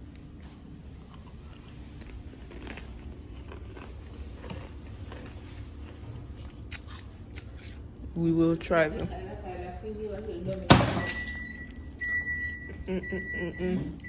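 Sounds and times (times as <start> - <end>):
person chewing crisps: 0.0 - 8.2.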